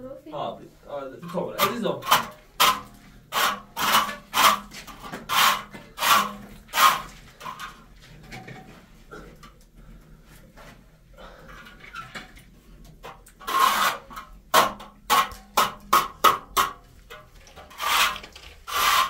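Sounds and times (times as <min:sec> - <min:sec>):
rasping scraping strokes: 0:01.3 - 0:07.8, 0:13.4 - 0:14.2, 0:17.6 - 0:19.0.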